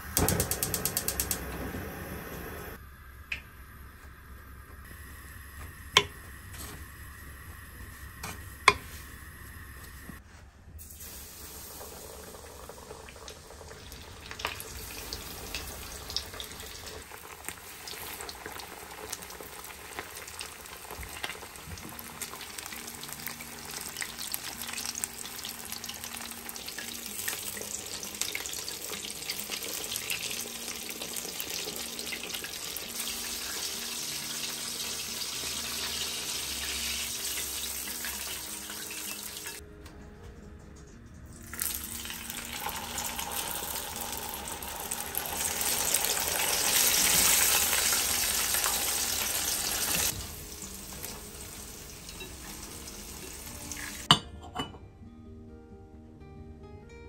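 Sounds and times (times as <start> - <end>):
chicken deep-frying in oil: 10.8 - 39.6, 41.5 - 54.1.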